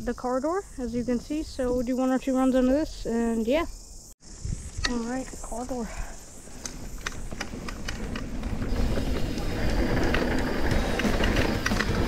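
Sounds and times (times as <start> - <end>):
wind buffeting microphone: 4.2 - 12.0
bike tyres rolling on dirt: 4.3 - 12.0.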